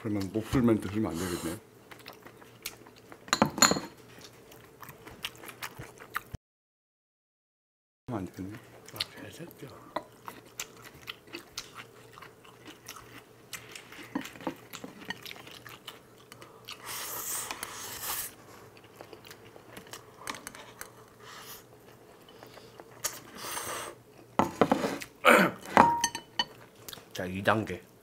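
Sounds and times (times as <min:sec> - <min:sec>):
close-up chewing and biting: 0:10.1 - 0:17.7, 0:18.6 - 0:23.4.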